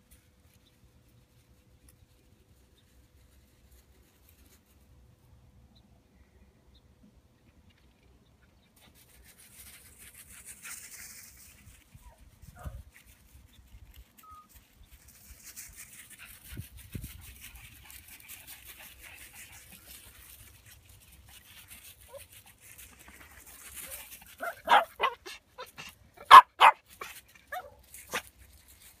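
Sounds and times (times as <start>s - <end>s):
puppies yapping: 24.4s - 28.2s.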